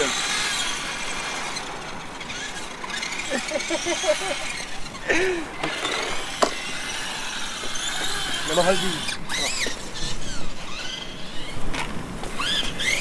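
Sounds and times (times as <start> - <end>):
toy car electric motor whining: 0.0 - 13.0
man laughing: 3.2 - 5.6.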